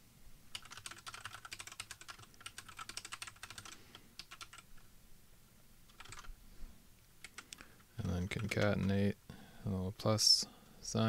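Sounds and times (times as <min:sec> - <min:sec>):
typing on a computer keyboard: 0:00.5 - 0:04.7, 0:05.9 - 0:06.3, 0:07.2 - 0:09.0.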